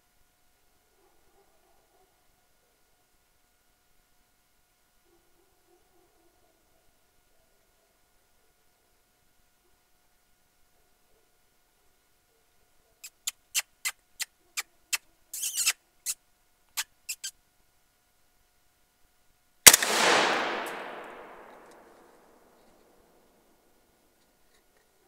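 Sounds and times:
sharp clicks: 0:19.7 - 0:22.0
rifle shot: 0:19.7 - 0:22.5.

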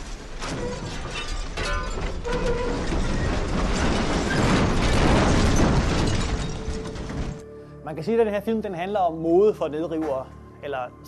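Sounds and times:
dense rattling clatter: 0:00.0 - 0:07.4.

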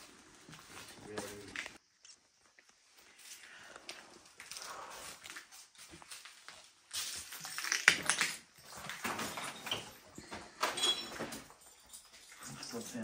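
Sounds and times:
footsteps crunching on debris: 0:00.0 - 0:07.9.

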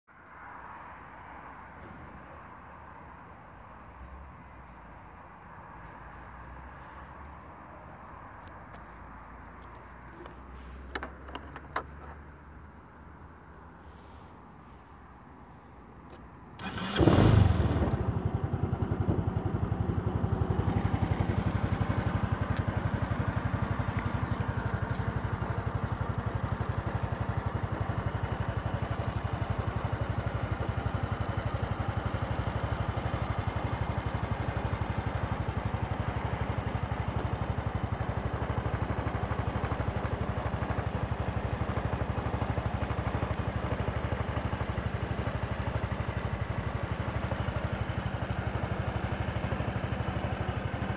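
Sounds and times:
scooter engine starting and idling: 0:16.6 - 0:50.9.

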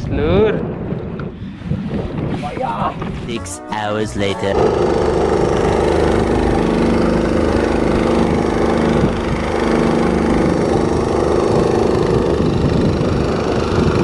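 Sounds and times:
outboard engine running: 0:04.5 - 0:14.0.

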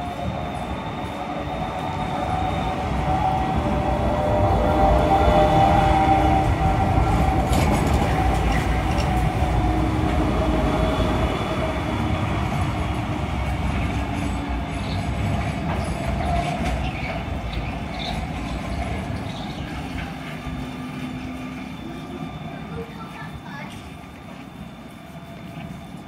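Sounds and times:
tram hum: 0:00.0 - 0:26.0
wheels rumbling on rails: 0:00.0 - 0:26.0.

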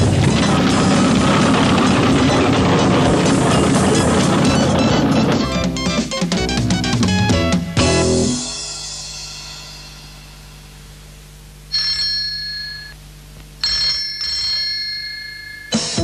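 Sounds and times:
music chord: 0:05.4 - 0:11.2
telephone bell ringing: 0:11.7 - 0:13.0, 0:13.6 - 0:16.0.

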